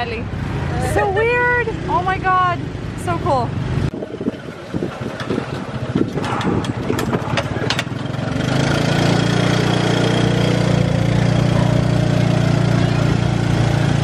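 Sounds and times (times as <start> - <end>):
tuk-tuk engine running: 0.0 - 14.0
sharp rattles and knocks: 4.0 - 11.6.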